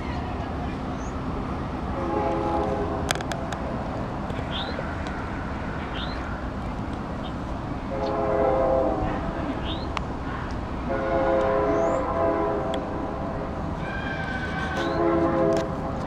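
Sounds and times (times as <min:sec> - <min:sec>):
locomotive air horn blasts: 0:01.9 - 0:03.2, 0:07.9 - 0:09.7, 0:10.8 - 0:13.1, 0:13.8 - 0:15.9.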